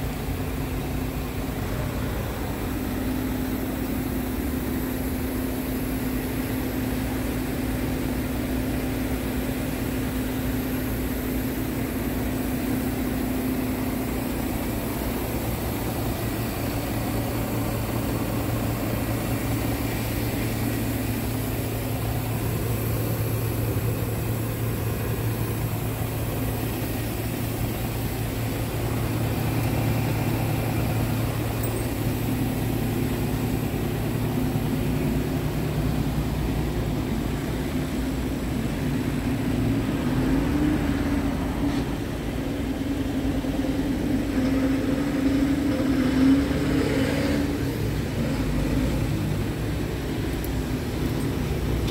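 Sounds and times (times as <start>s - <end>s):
diesel truck engine idling: 0.0s - 46.8s, 47.4s - 51.9s.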